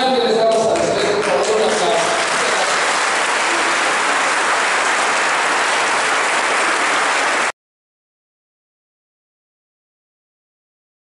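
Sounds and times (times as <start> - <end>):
congregation applauding: 0.5 - 7.6.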